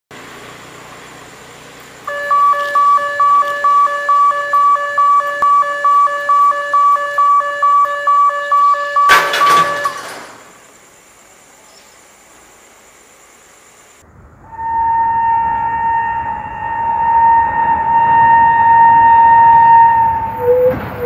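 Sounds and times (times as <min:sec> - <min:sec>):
level crossing alarm beeping: 0:02.1 - 0:10.6, 0:14.9 - 0:21.0.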